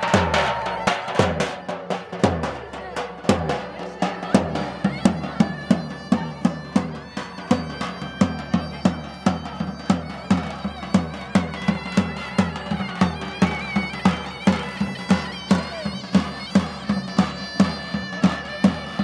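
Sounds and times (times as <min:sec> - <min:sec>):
high-pitched reed melody: 0:00.0 - 0:02.4
large drum beating dance rhythm: 0:00.0 - 0:12.5.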